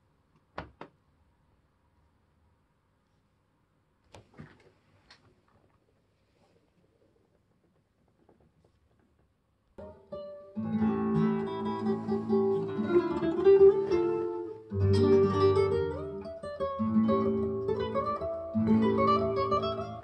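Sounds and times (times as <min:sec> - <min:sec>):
acoustic guitar music: 0:09.8 - 0:20.0.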